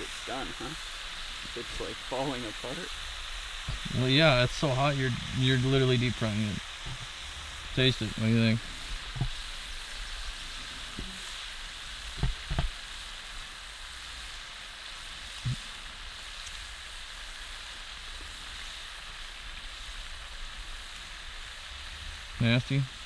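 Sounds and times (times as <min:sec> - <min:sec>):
fish sizzling in hot oil: 0:00.0 - 0:23.0.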